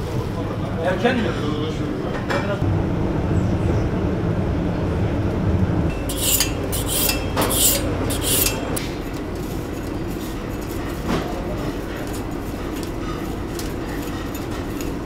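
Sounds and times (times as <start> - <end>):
knife scraping on sharpening steel: 5.9 - 8.8.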